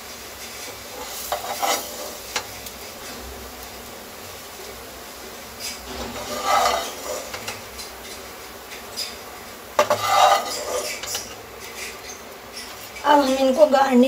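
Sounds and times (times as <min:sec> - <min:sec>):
metal spoon scraping a pan: 0:00.4 - 0:02.7, 0:05.6 - 0:13.4.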